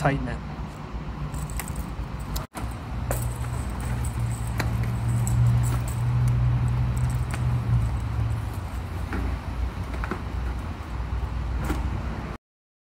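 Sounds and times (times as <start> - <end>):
gear clicks and rustles: 0.7 - 9.2.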